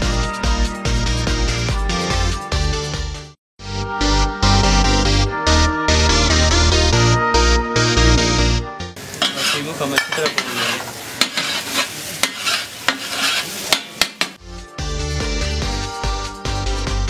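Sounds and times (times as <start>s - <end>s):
meat sizzling on griddle: 9.0s - 14.4s
metal spatula scraping griddle: 9.2s - 14.3s.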